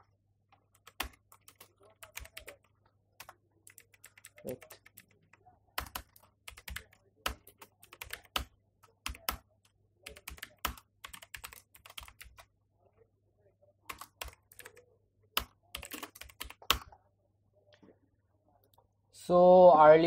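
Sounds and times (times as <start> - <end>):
typing on computer keyboard: 0.7 - 12.5, 13.9 - 14.8, 15.4 - 17.0.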